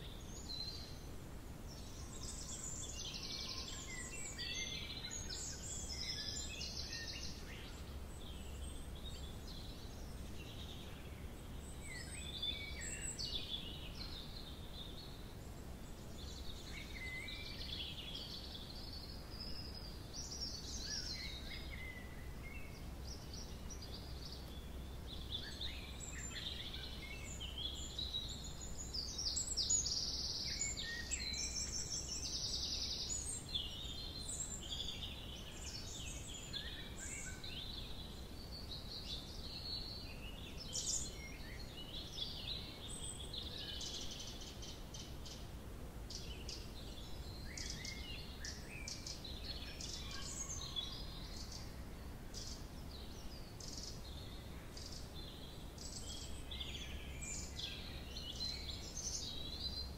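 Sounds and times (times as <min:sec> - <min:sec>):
songbirds singing and calling: 0:00.0 - 0:59.9.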